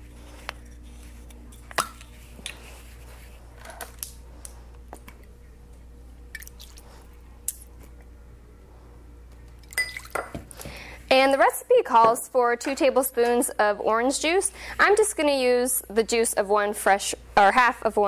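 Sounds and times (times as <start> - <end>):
low steady hum: 0.0 - 18.0.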